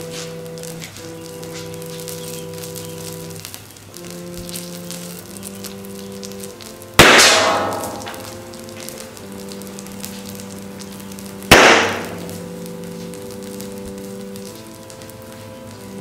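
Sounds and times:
burning plastic crackling and sizzling: 0.0s - 16.0s
sudden loud pops: 7.0s - 8.4s, 11.5s - 12.5s.

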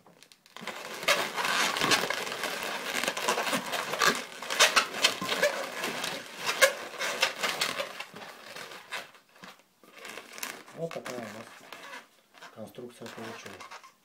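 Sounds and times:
balloons rubbing and squeaking: 0.5s - 14.0s.

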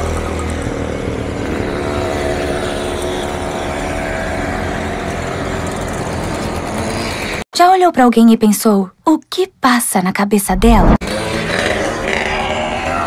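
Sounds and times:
motorcycle and scooter engines passing: 0.0s - 7.4s, 11.0s - 13.0s.

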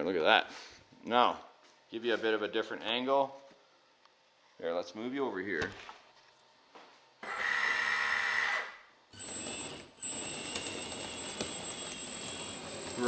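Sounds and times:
hydraulic pump whining: 7.2s - 13.0s.

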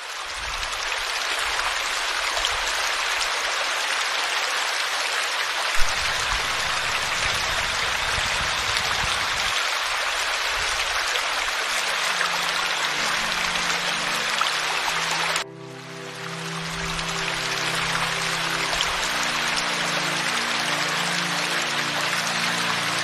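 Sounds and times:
stream splashing over cascade: 0.0s - 23.0s
soft music: 11.7s - 23.0s.

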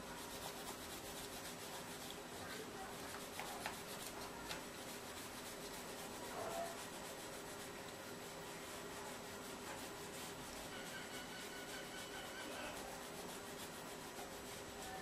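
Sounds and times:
eraser scrubbing on paper: 0.0s - 15.0s.

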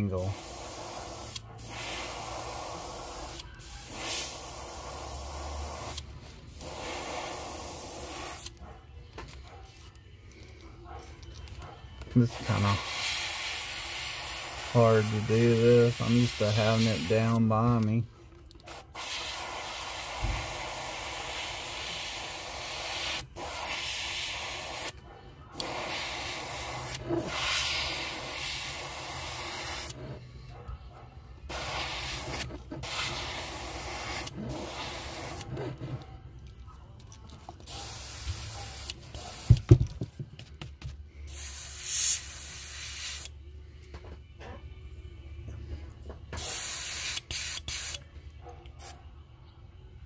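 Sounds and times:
airbrush spraying hiss: 0.3s - 8.5s, 12.3s - 17.5s, 18.7s - 24.9s, 25.6s - 30.0s, 31.5s - 35.5s, 37.7s - 39.6s, 41.3s - 43.3s, 46.4s - 48.0s.

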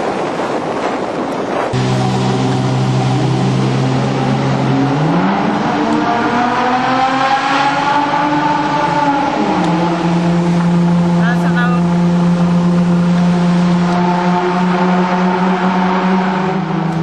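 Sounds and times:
car engine revving in tunnel: 1.7s - 17.0s.

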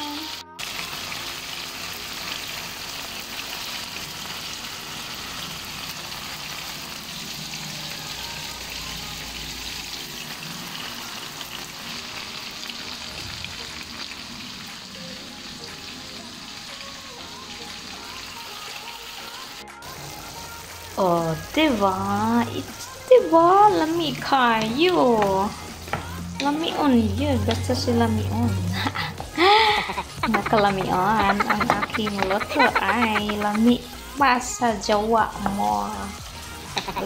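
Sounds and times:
chicken sizzling in hot oil: 0.0s - 37.0s.

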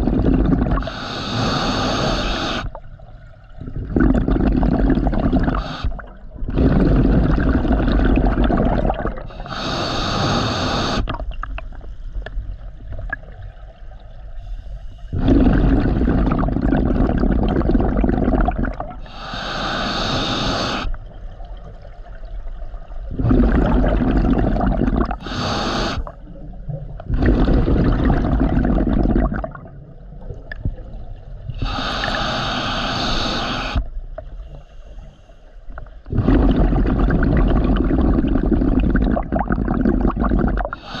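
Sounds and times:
diver breathing through regulator: 0.0s - 2.8s, 4.0s - 8.2s, 9.2s - 11.1s, 14.4s - 17.2s, 19.0s - 21.0s, 24.5s - 26.2s, 31.5s - 37.0s, 40.6s - 41.0s.

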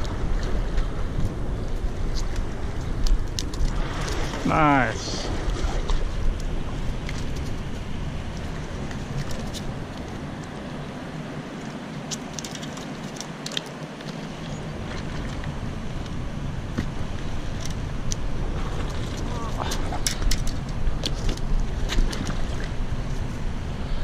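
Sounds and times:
rushing outdoor noise: 0.0s - 24.0s
clicks and taps handling fish: 12.0s - 14.3s, 19.1s - 22.4s.

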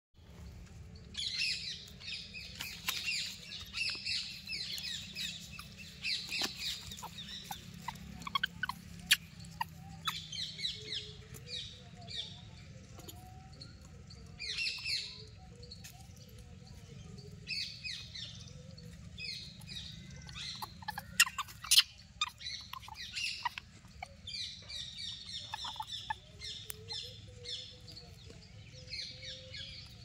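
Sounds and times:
high-pitched animal chirps and squeals: 5.2s - 11.1s, 19.6s - 26.8s.

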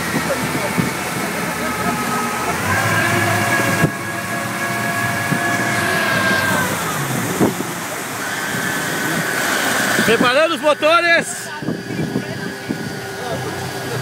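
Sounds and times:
outboard engines whining: 0.0s - 14.0s
wind and wake water rushing: 0.0s - 14.0s.

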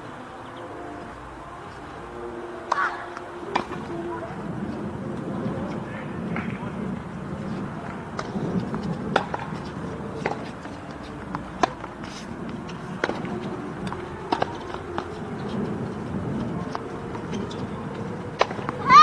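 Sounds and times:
tennis ball strikes and bounces: 2.6s - 4.0s, 7.8s - 19.0s.

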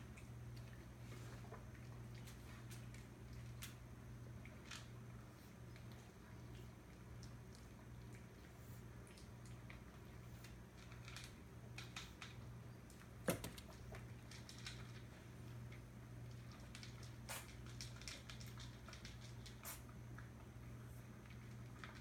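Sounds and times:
low room hum: 0.0s - 22.0s
kittens' paws tapping and scratching: 9.1s - 19.9s.

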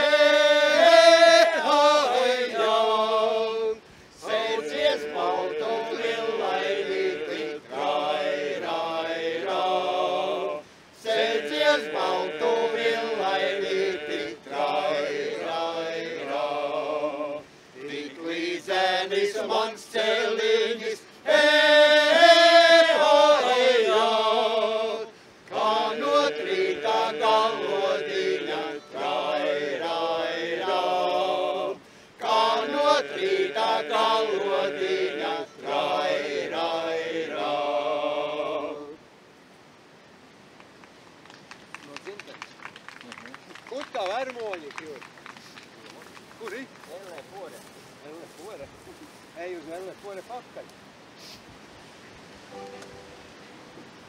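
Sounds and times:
men's folk choir singing over a drone: 0.0s - 39.2s.

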